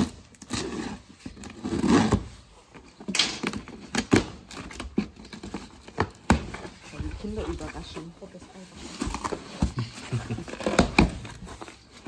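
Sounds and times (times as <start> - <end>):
packing tape ripping: 0.0 - 6.8, 10.4 - 11.8
cardboard knocks and rustles: 8.9 - 11.8.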